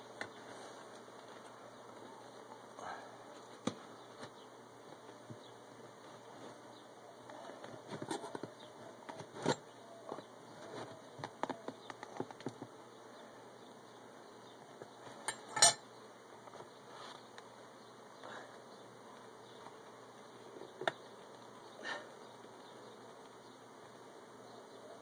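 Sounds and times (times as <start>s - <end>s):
bees buzzing: 15.8s - 25.0s.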